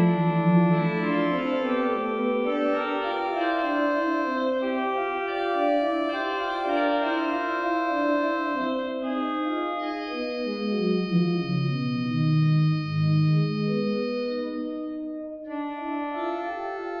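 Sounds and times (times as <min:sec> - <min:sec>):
pipe organ sustained chords: 0:00.0 - 0:17.0.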